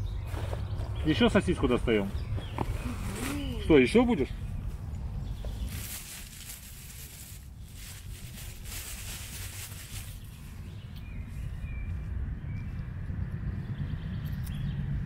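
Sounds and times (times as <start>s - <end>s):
bird calling: 0.0s - 5.9s
low rumble with hiss: 0.9s - 15.0s.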